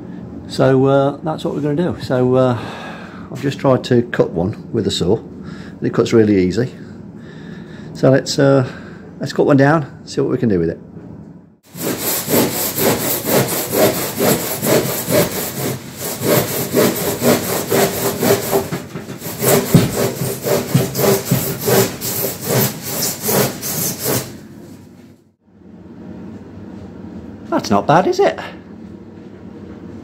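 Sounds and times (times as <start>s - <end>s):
hand saw cutting insulation board: 11.7s - 24.8s.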